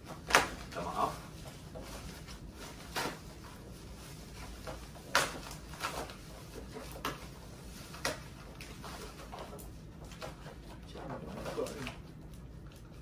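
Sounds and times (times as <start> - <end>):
plastic wrap rustling and crinkling: 0.0 - 13.0.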